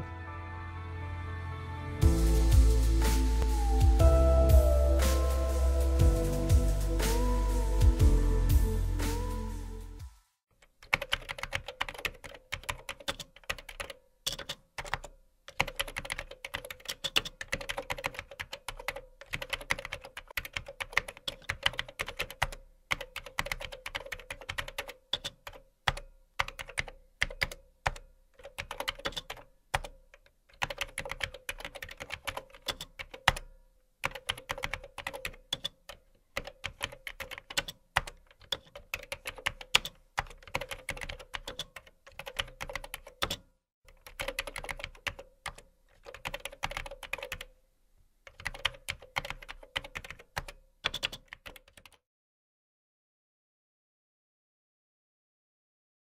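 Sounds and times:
typing on computer keyboard: 10.7s - 47.5s, 48.3s - 52.0s.

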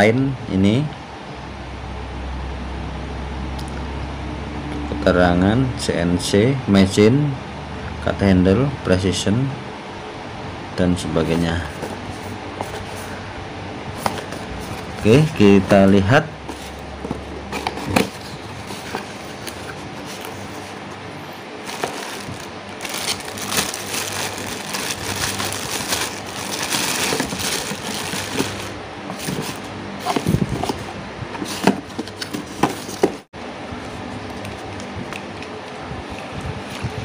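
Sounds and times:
plastic bag crinkling: 21.6s - 30.4s
cardboard box knocks and clicks: 31.4s - 33.2s.

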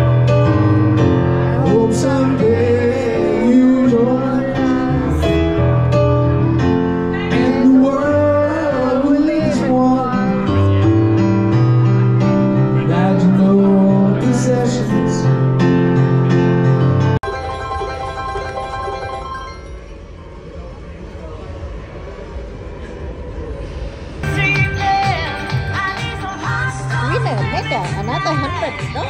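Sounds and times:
song with vocals: 1.4s - 5.7s, 6.8s - 11.1s, 24.2s - 29.0s.

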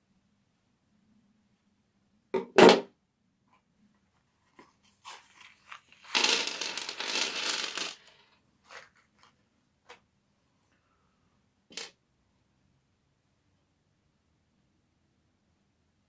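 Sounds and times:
cartridges clattering onto wooden table: 6.1s - 8.0s.

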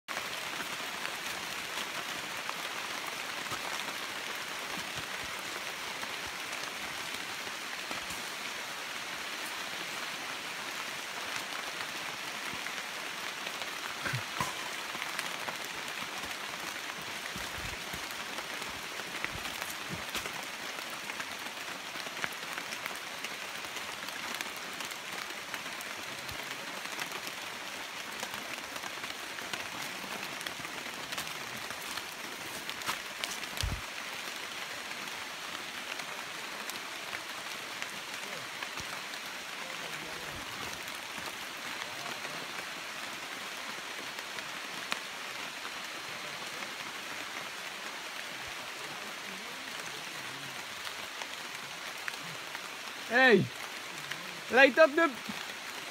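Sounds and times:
rain falling on foliage: 0.0s - 55.9s.

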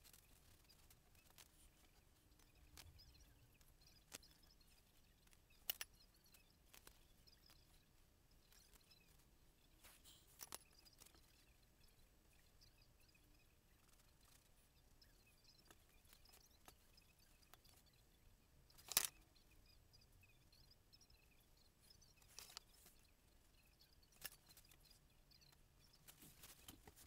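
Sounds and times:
faint high chirps: 0.0s - 27.0s.

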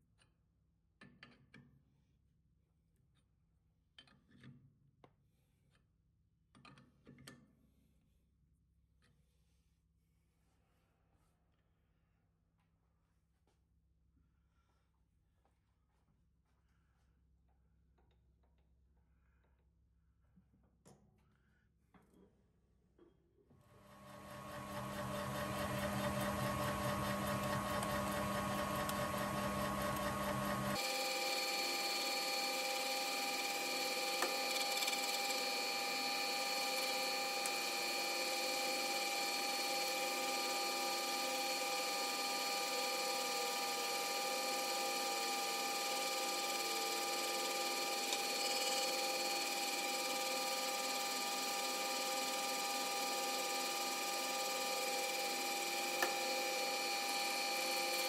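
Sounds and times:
metal lathe whining: 23.8s - 58.0s.

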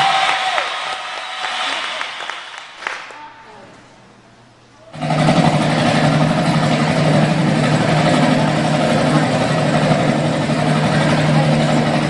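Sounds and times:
engine idling hum: 3.9s - 12.0s.

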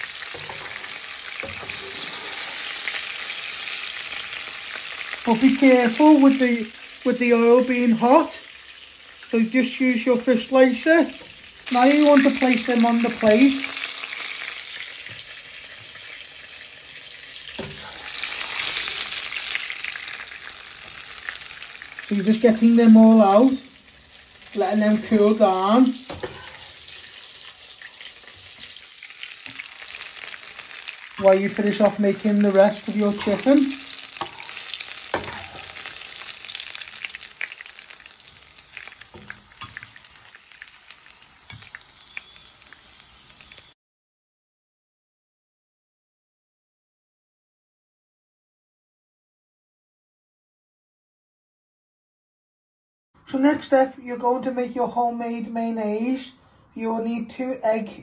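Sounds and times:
chicken sizzling in oil: 0.0s - 43.8s.

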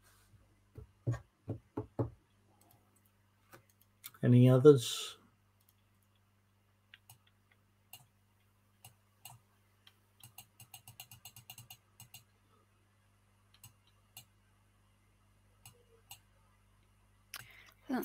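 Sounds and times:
computer keys clicking: 10.2s - 12.3s.

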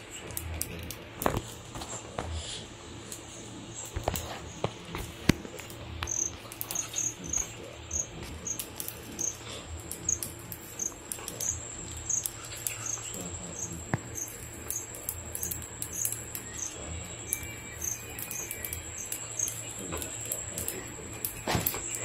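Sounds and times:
faint clicks: 0.0s - 2.4s, 3.0s - 22.0s
insect chirping trill: 6.0s - 22.0s.

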